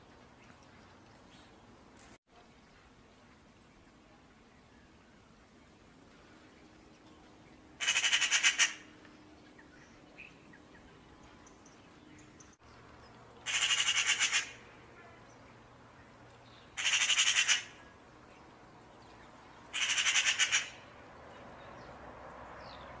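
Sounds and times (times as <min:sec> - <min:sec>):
magpie chattering: 0:07.8 - 0:08.8, 0:13.5 - 0:14.6, 0:16.8 - 0:17.8, 0:19.7 - 0:20.8.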